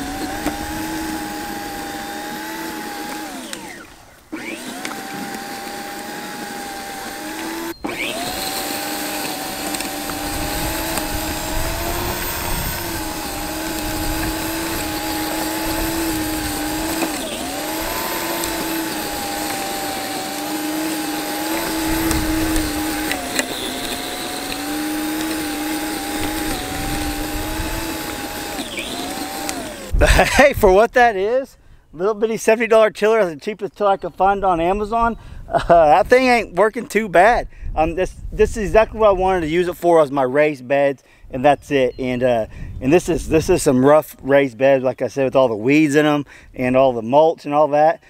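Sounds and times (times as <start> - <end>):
low thuds of tines hitting soil: 0.0 - 30.2
electric tiller motor whining: 0.0 - 30.8.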